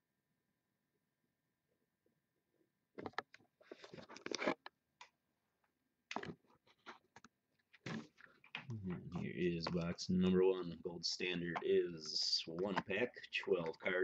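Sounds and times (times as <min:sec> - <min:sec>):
faint clicking and scraping handling: 0:11.5 - 0:14.0.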